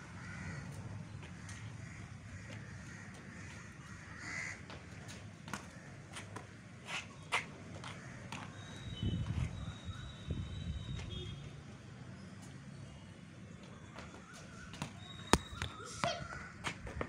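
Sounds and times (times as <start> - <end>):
crows cawing: 0.2 - 4.8, 5.6 - 6.2, 7.9 - 8.4.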